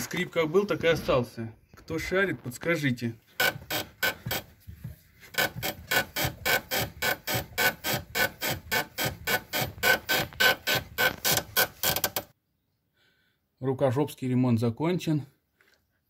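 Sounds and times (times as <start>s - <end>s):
suspension squeaking: 3.3s - 12.3s.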